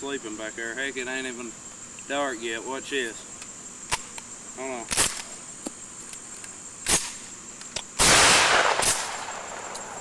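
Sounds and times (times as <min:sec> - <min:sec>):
shotgun blast: 0:08.0 - 0:10.0.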